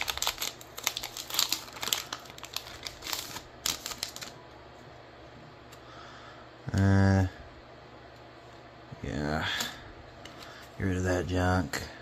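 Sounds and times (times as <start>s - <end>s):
foil wrapper crinkling: 0.0s - 4.4s.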